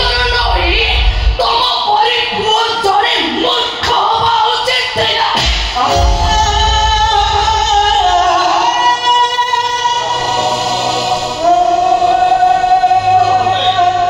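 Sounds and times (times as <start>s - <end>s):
musical accompaniment: 5.8s - 14.0s
low bass beat: 5.9s - 8.5s.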